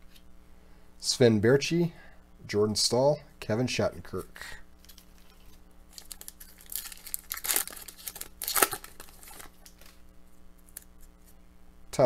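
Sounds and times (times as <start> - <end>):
foil wrapper crinkling and tearing: 4.8 - 10.0.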